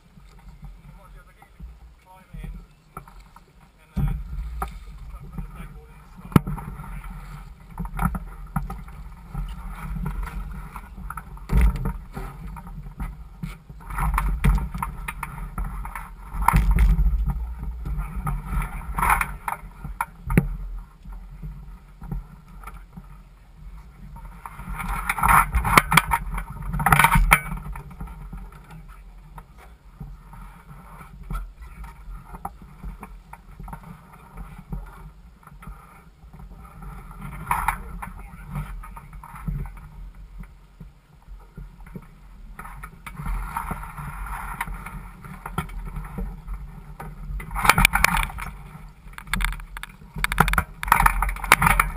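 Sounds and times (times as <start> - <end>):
low rumble on microphone: 0.0 - 51.9
water sloshing against hull: 0.1 - 23.1
knocks and rattles from rigging: 49.2 - 51.9.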